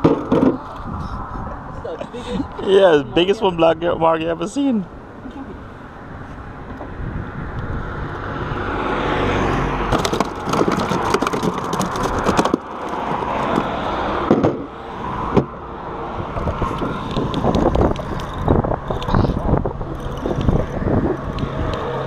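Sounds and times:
car passing: 0:00.0 - 0:22.0
gear clicking and knocking: 0:09.9 - 0:13.8.

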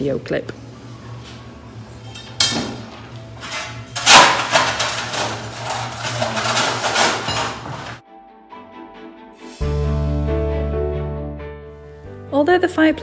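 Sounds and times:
broken tiles clattering: 0:03.4 - 0:08.0.

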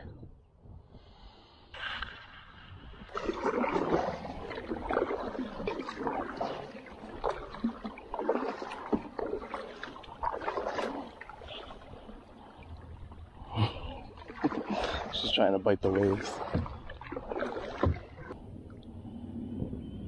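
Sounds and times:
water lapping against hull: 0:02.8 - 0:19.0
paddle strokes splashing: 0:03.1 - 0:13.3, 0:13.9 - 0:18.4.

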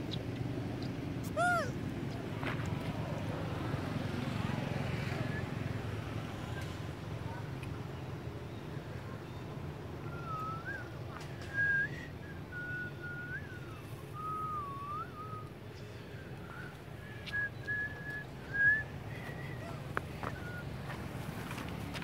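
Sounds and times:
person whistling a tune: 0:10.1 - 0:15.5.

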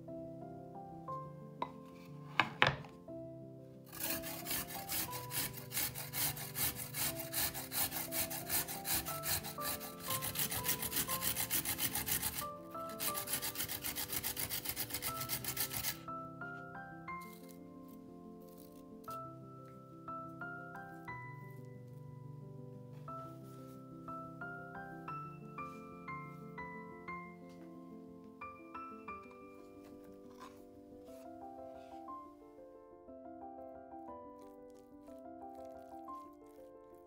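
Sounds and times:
carrot being grated: 0:03.9 - 0:16.1.

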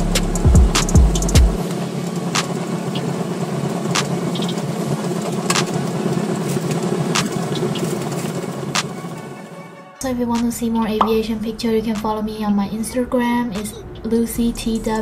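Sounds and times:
propeller plane engine droning: 0:00.0 - 0:15.0
sharp ticks: 0:00.2 - 0:06.0.

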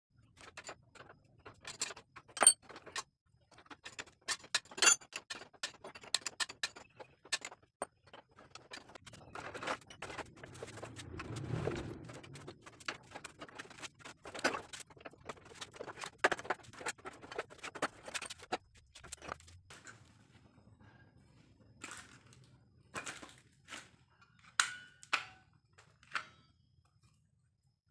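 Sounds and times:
metal tools clinking and rattling: 0:00.2 - 0:10.9, 0:12.1 - 0:19.5
dull scraping rumble: 0:08.9 - 0:15.5.

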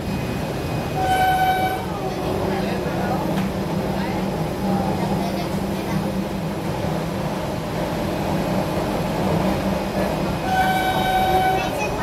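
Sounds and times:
railbus rumbling: 0:00.0 - 0:12.0
train horn: 0:01.0 - 0:02.0, 0:10.4 - 0:11.9.

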